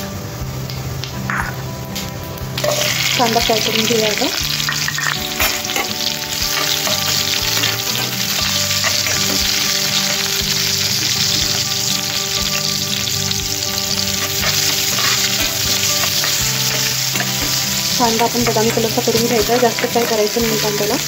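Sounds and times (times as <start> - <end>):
onion sizzling in oil: 0.0 - 21.0
spoon scraping pan: 2.6 - 3.8, 4.5 - 11.7, 13.8 - 21.0.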